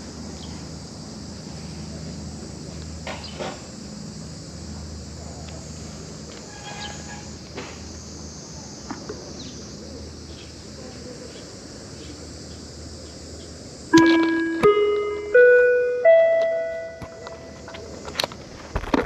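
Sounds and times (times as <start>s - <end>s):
high-pitched insect chorus: 0.0s - 18.8s
low background hum: 0.0s - 19.0s
two-note loudspeaker chime: 14.0s - 17.8s.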